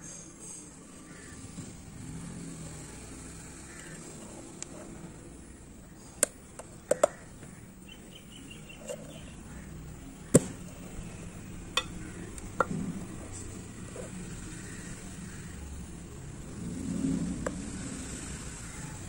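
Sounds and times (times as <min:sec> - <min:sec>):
metal tin lid clicks and knocks: 0:06.2 - 0:07.3, 0:11.8 - 0:12.8.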